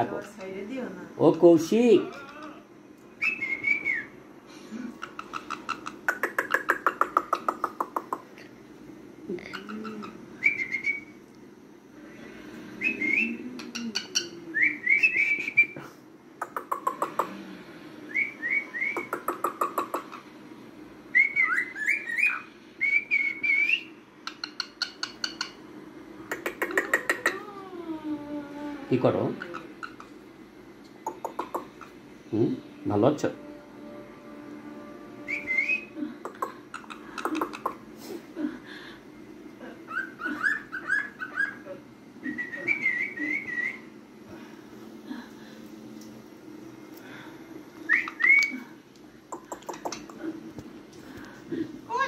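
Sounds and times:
cockatiel whistling: 3.2s - 4.2s, 9.6s - 11.2s, 12.8s - 15.8s, 18.1s - 19.8s, 21.1s - 25.5s, 35.2s - 37.6s, 39.9s - 41.6s, 42.2s - 43.9s, 47.9s - 48.6s
cockatiel clicking chatter: 5.0s - 8.4s, 16.4s - 17.4s, 18.9s - 20.2s, 24.3s - 25.6s, 26.3s - 27.4s, 31.0s - 31.9s, 36.3s - 37.8s, 49.3s - 50.2s.

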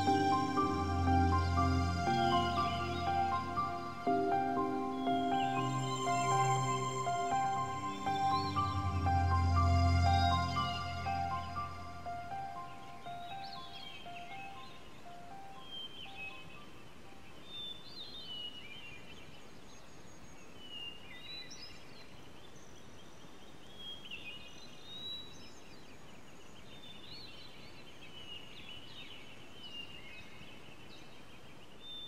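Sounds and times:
birds chirping: 0.0s - 16.8s
outdoor ambience hiss: 0.0s - 32.0s.

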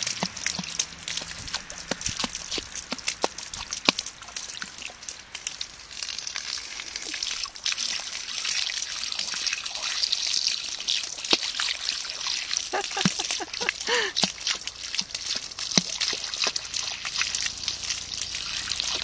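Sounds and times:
water splats and drips: 0.0s - 19.0s.

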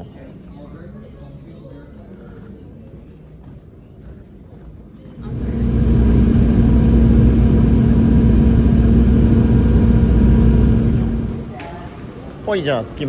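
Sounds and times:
jet airliner cabin rumble: 5.2s - 11.6s
terminal ambience: 5.2s - 12.4s.

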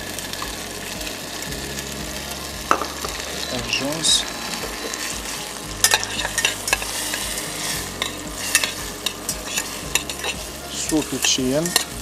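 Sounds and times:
vegetables sizzling in butter: 0.0s - 12.0s
metal tongs clicking against pan: 5.8s - 12.0s.

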